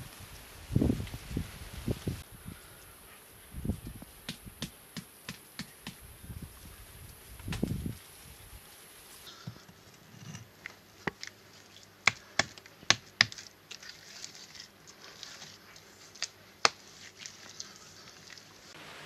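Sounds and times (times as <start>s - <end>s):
hands rubbing and patting mud: 7.1s - 18.8s.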